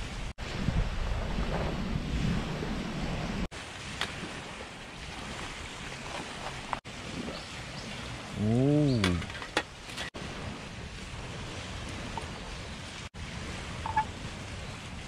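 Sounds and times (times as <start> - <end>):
waves on the shore: 0.0 - 15.0
wind: 0.0 - 15.0
man humming: 8.4 - 9.3.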